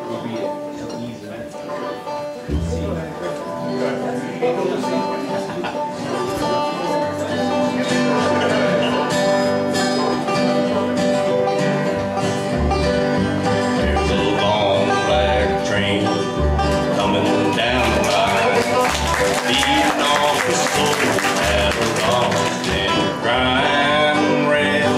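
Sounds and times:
acoustic guitar: 0.0 - 24.9
banjo: 0.0 - 24.9
fiddle: 0.0 - 24.9
mandolin: 0.0 - 24.9
upright bass notes: 2.4 - 4.2, 8.1 - 24.9.

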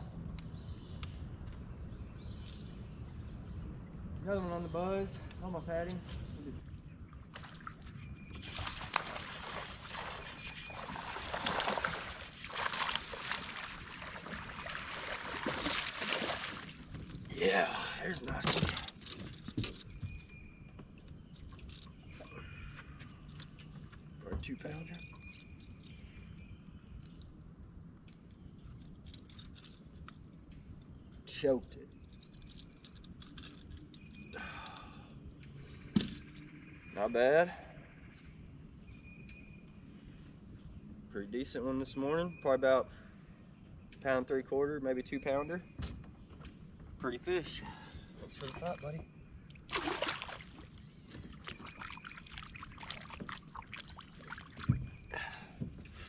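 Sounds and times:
insects chorus: 0.0 - 56.0
fish splashing into water: 8.4 - 16.8, 49.7 - 50.7, 51.3 - 55.0.

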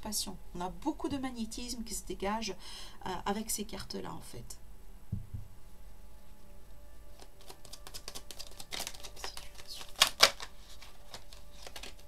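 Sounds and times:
cards shuffled by hand: 7.1 - 12.0
card snapping: 7.2 - 12.0.

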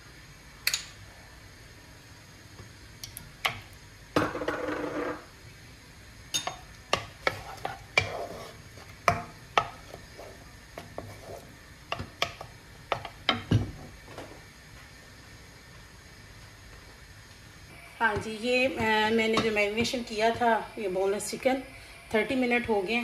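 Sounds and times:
wooden spatula knocking and scraping: 6.4 - 13.8, 18.1 - 20.4
metal spoon scraping frying pan: 7.2 - 8.9.

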